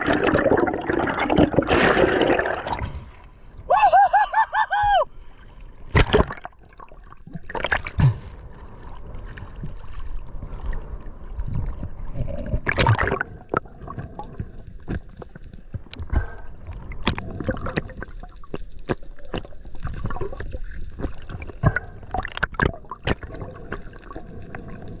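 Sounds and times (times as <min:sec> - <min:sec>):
water swashes: 0:05.2 - 0:25.0
seawater sloshing and gurgling: 0:05.9 - 0:25.0.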